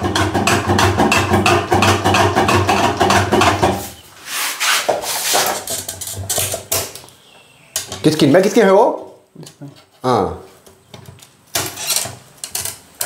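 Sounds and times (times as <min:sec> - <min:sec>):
short rustle: 0:04.0 - 0:05.7.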